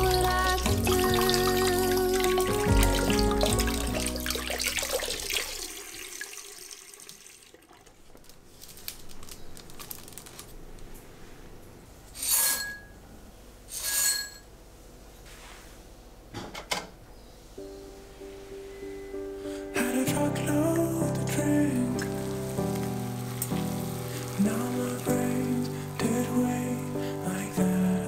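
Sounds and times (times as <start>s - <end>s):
tap water running: 0.0s - 8.4s, 20.7s - 26.5s
grain poured into glass bowl: 21.8s - 26.8s.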